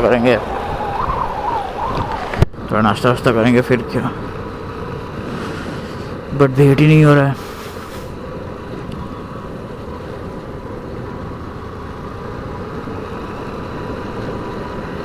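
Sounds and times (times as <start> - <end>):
wind noise: 0.0 - 2.9
road noise: 0.0 - 15.0.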